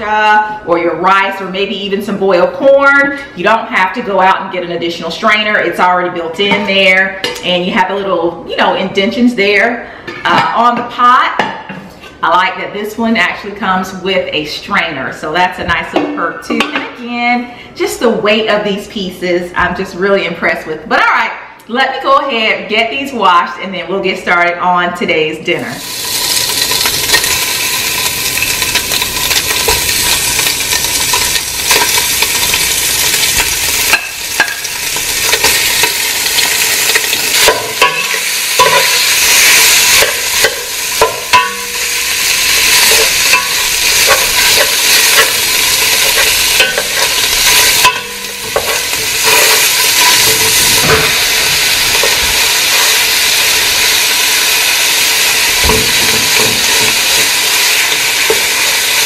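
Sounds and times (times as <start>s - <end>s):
meat sizzling in a pot: 25.8s - 59.0s
utensil scraping and tapping pan: 42.6s - 51.2s.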